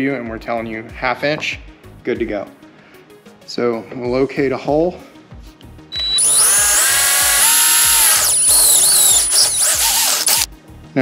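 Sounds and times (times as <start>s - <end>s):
cordless drill drilling sheet metal: 5.9s - 10.5s.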